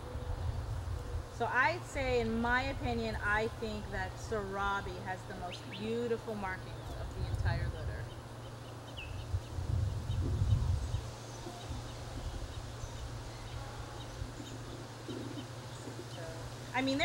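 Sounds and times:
low rumble: 9.2 - 12.7.

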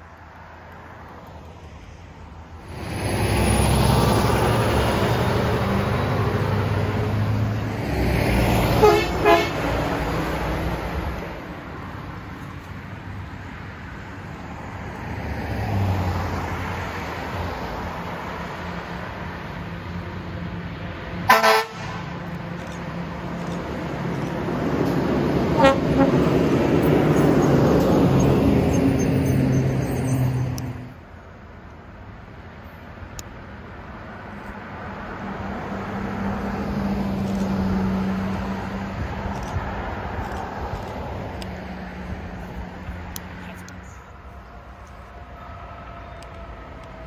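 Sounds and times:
road traffic passing: 0.0 - 47.0
vehicle horn toots: 8.8 - 9.7, 21.3 - 22.0, 25.6 - 26.3.

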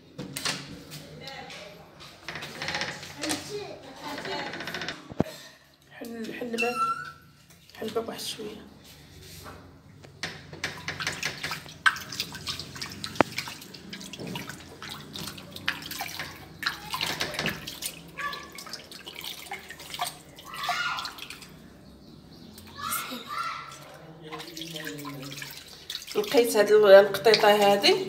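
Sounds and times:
water sloshing in a sink: 5.6 - 28.0
water dripping: 10.0 - 28.0.

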